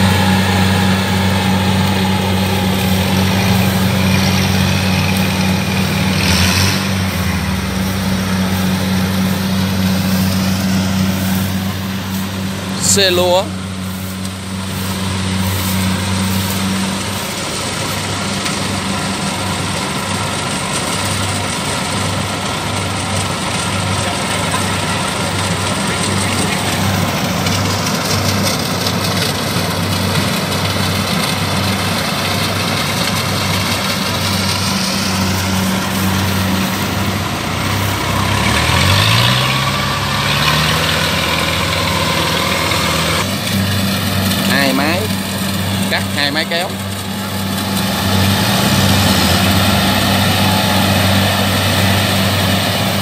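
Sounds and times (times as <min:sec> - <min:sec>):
engine revving up: 0:00.0 - 0:22.2, 0:23.3 - 0:53.0
diesel engines running: 0:00.0 - 0:53.0.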